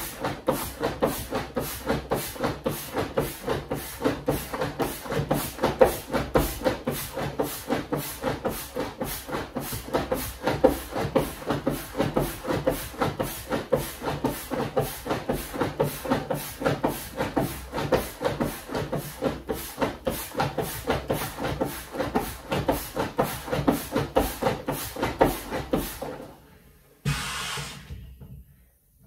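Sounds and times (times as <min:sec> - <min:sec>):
foot pump strokes: 0:00.0 - 0:26.4, 0:27.0 - 0:28.2
air puffing through hose: 0:27.0 - 0:28.2.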